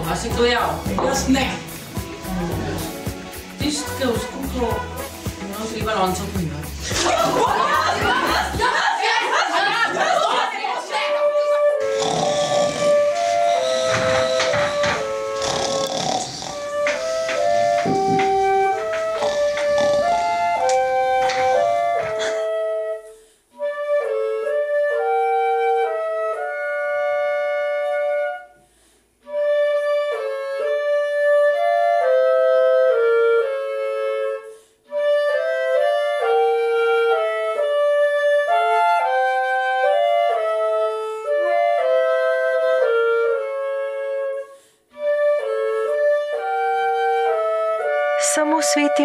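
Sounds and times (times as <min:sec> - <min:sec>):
flute playing: 0:00.8 - 0:05.9, 0:10.9 - 0:49.0
clarinet playing: 0:11.0 - 0:49.0.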